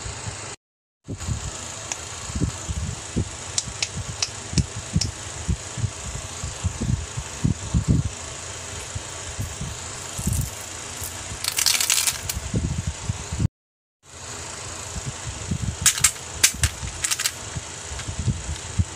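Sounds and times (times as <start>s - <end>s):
sweets rattling into tub: 9.4s - 12.4s
plastic toys knocking: 11.4s - 12.4s, 15.9s - 17.4s.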